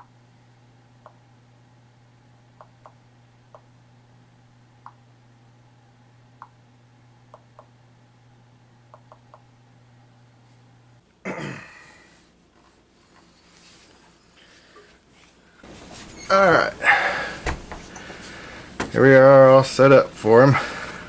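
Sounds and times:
touchscreen tapping ticks: 8.9 - 9.4
man clearing throat: 11.2 - 12.0.

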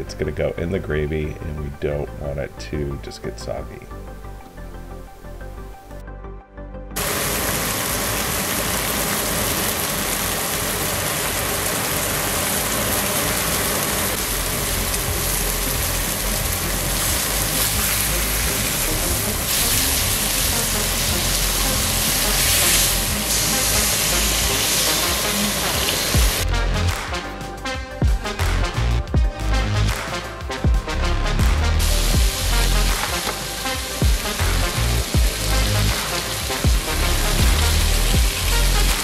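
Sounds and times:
steaks sizzling in oil: 7.0 - 26.4, 31.8 - 39.0.

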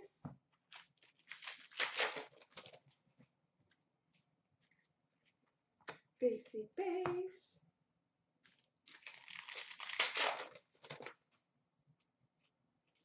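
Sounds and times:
wrapper tearing and crinkling: 0.7 - 2.8, 8.5 - 11.2.

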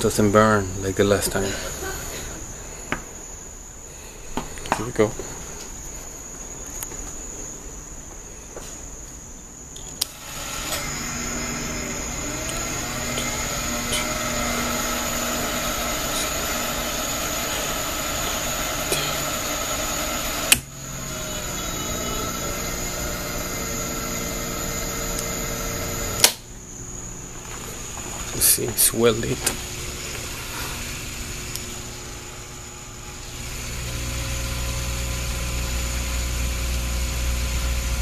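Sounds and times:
organ motor whirring with steady tones: 10.0 - 38.0
organ switch clicking: 20.5 - 20.7, 26.2 - 26.5.

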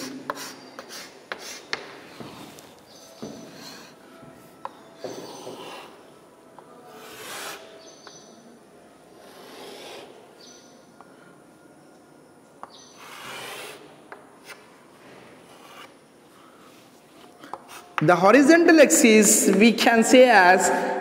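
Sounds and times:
chalk scraping on blackboard: 0.0 - 2.6, 5.0 - 6.1, 6.9 - 8.1, 9.2 - 10.6, 12.7 - 14.7, 15.4 - 16.0, 17.5 - 18.0
chalk tapping: 0.0 - 4.0, 12.6 - 14.7, 15.4 - 16.0.

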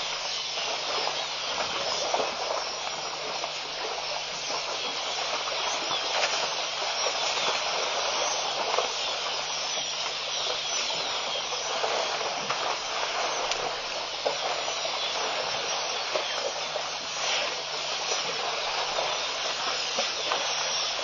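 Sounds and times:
steady hiss: 0.0 - 21.0
faint clicks: 10.5 - 16.7.

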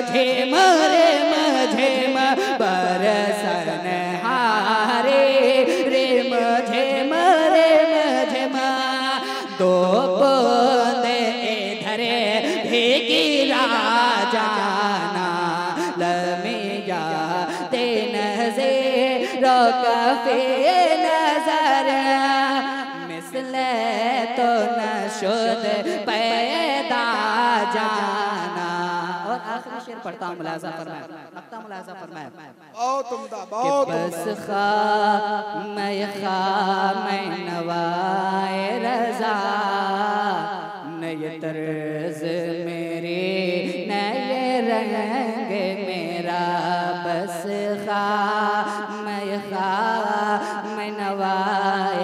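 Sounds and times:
man singing into a microphone: 0.0 - 52.0.

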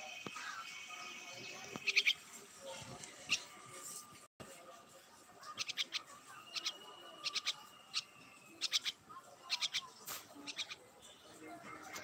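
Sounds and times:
babbler chattering calls: 1.7 - 2.2, 5.4 - 11.0
thin high bird tone: 5.5 - 11.4.

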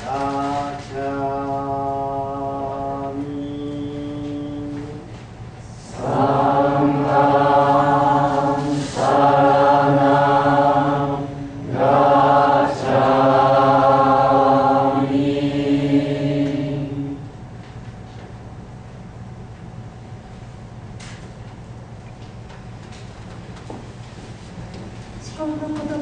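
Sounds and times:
low voices chanting: 5.7 - 17.3.

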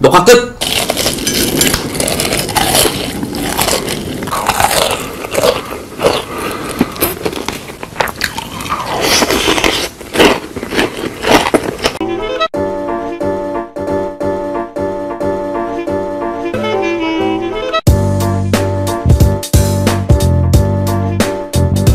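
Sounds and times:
biting and crunching food: 0.6 - 12.0
chewing: 0.6 - 12.0
music with a steady beat: 17.9 - 21.9.

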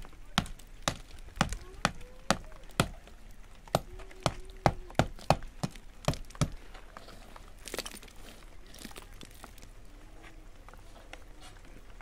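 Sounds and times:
hammer chipping plaster: 0.4 - 3.0, 3.7 - 6.6.

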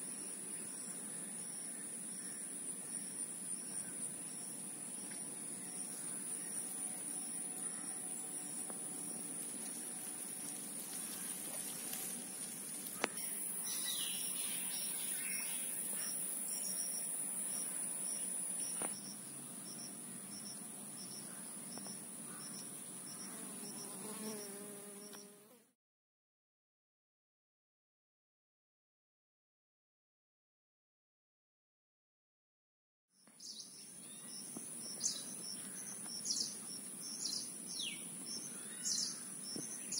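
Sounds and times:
insects high drone: 0.0 - 25.3
cricket chirping: 0.0 - 25.4, 33.4 - 39.9.

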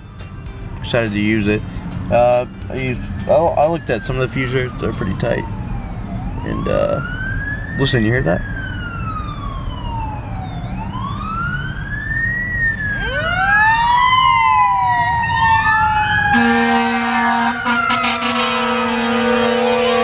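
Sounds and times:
fire engine siren wailing: 2.1 - 20.0
second wailing siren: 3.2 - 20.0
fire truck horn blaring: 16.3 - 20.0.

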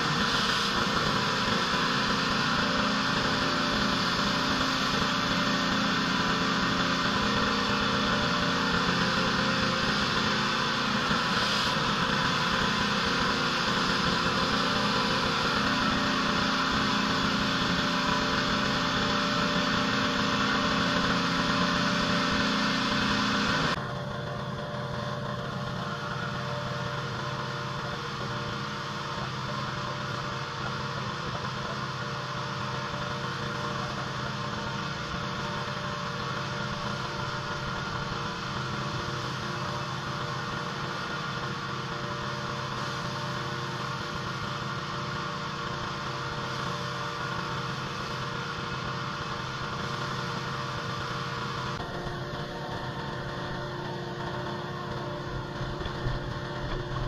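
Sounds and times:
water spray hissing: 0.0 - 23.7
pressure washer engine running: 0.0 - 57.0.

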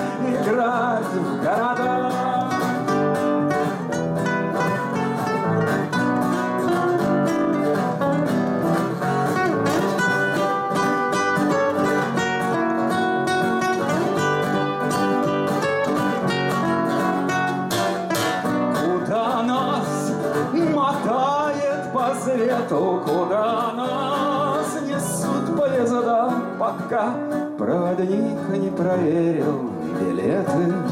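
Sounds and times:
man's voice: 0.0 - 3.5, 18.6 - 30.9
acoustic guitars playing: 0.0 - 30.9.

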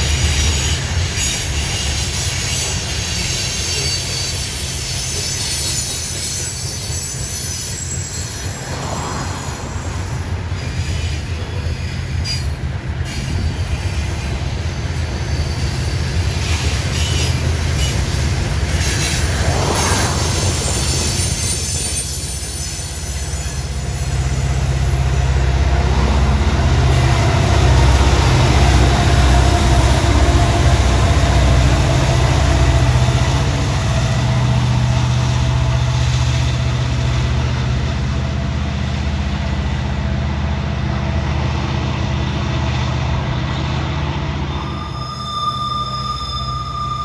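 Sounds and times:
train wheels squealing: 0.0 - 25.2, 43.5 - 47.0
diesel locomotive engine drone: 0.0 - 47.0
freight cars rolling: 7.7 - 12.6, 16.6 - 35.9.

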